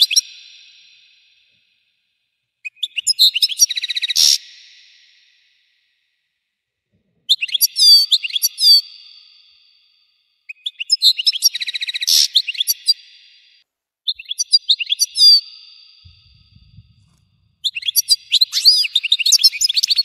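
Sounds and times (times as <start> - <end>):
bird twittering song: 0.0 - 1.0, 2.6 - 5.1, 7.3 - 9.4, 10.5 - 20.0.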